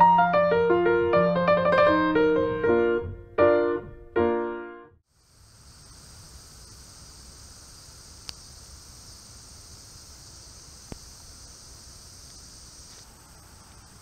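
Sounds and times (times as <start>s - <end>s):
high-pitched insect buzzing: 5.1s - 14.0s
thin high insect tone: 5.1s - 14.0s
faint clicks: 8.2s - 8.4s, 10.8s - 11.1s.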